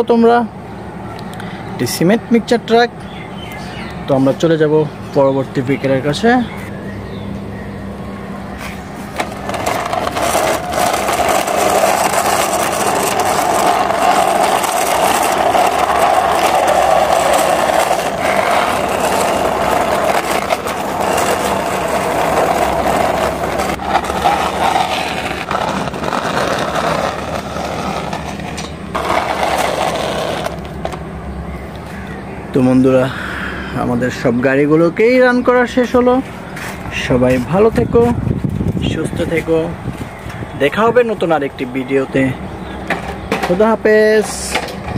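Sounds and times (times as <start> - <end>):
toy car wheels rolling on concrete: 8.6 - 31.1, 40.7 - 44.9.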